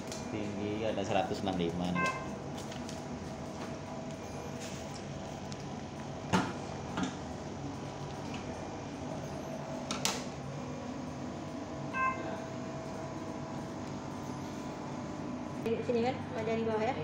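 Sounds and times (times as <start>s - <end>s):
room hum: 0.0s - 17.0s
brief high tone: 1.9s - 2.3s, 11.9s - 12.5s.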